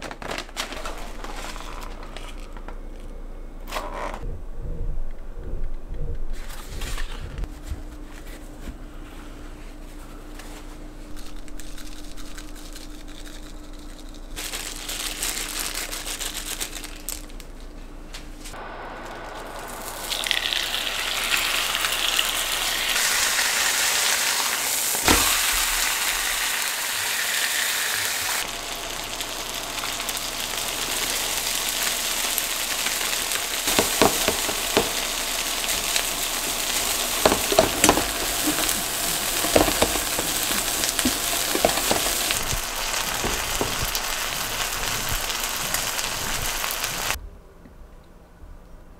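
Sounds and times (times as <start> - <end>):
low steady hum: 0.0 - 23.9
food sizzling in a frying pan: 19.2 - 47.2.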